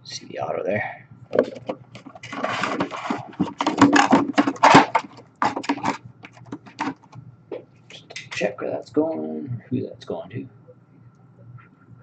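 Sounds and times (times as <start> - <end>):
plastic and cardboard crinkling: 1.3 - 7.2.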